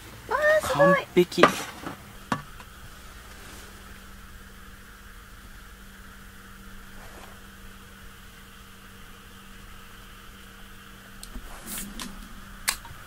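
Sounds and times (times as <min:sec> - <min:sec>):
faint background hiss: 0:00.0 - 0:13.0
steady low hum: 0:00.0 - 0:13.0
handling rustles and knocks: 0:01.3 - 0:03.8.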